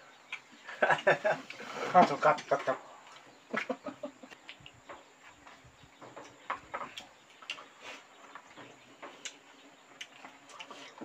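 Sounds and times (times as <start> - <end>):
people eating with hands: 0.0 - 11.0
chewing and lip smacks: 9.2 - 11.0.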